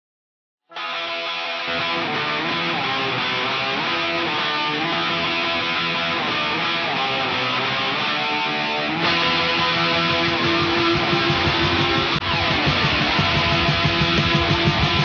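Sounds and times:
strummed guitar: 0:00.7 - 0:15.0
bass: 0:08.8 - 0:15.0.

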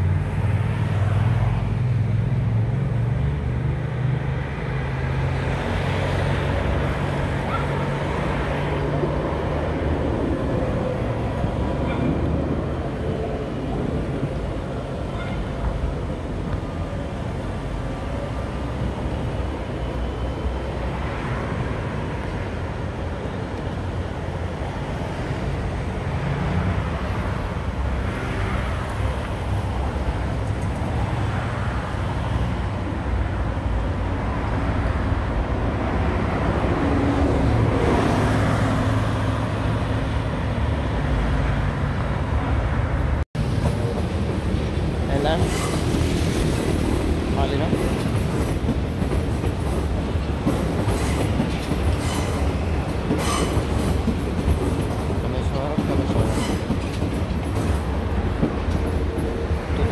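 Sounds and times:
cars passing: 0:00.0 - 0:59.9
tram running on track: 0:00.0 - 0:59.9.

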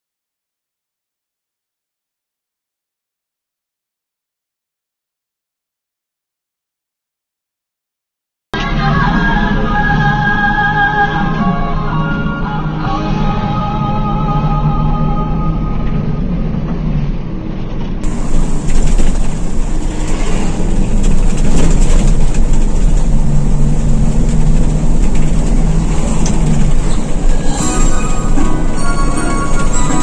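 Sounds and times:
bus engine drone: 0:08.6 - 0:30.0
road and wind noise: 0:08.6 - 0:30.0.

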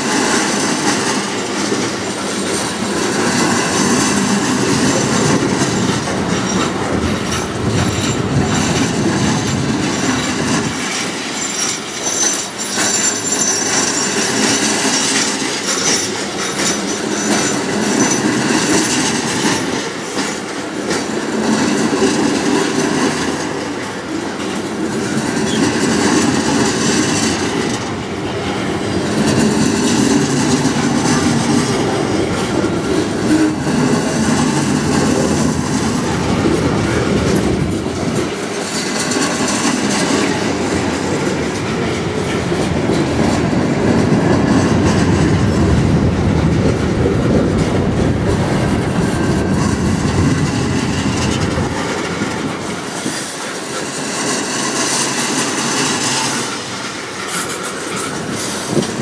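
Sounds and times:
freight train wheels clattering: 0:00.0 - 0:59.0.

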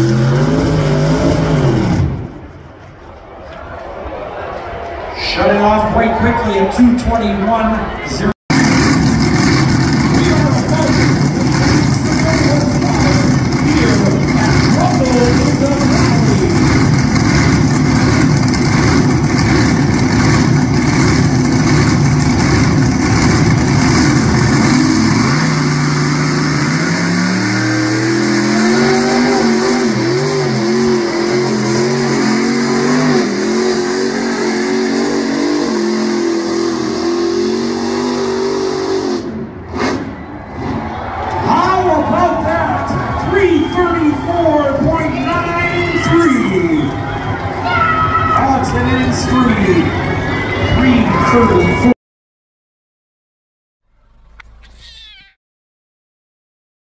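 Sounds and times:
truck engine running hard: 0:00.0 - 0:02.7, 0:08.5 - 0:47.6.

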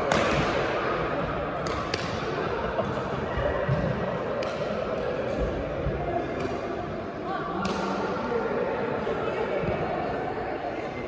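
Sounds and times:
rackets striking shuttlecock: 0:00.0 - 0:00.8, 0:01.6 - 0:02.9, 0:04.4 - 0:05.6, 0:06.3 - 0:06.8, 0:07.6 - 0:08.1.

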